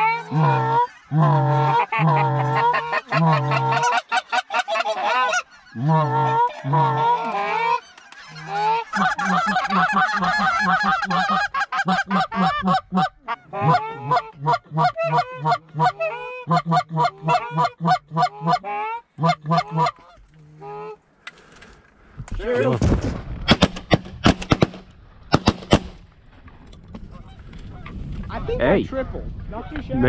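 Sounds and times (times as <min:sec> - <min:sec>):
goose honking and clucking: 0:00.0 - 0:21.0.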